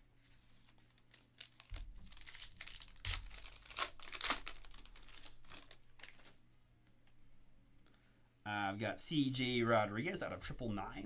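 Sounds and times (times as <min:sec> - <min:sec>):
foil wrapper tearing and crinkling: 0:01.0 - 0:06.3.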